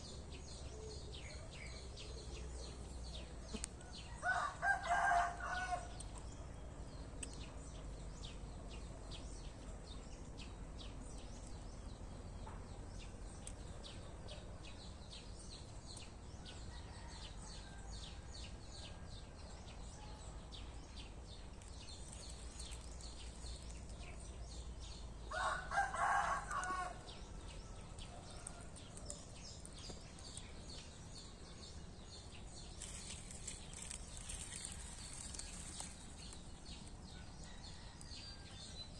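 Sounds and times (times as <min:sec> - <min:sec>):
rooster crowing: 0:04.1 - 0:05.9, 0:25.3 - 0:27.0.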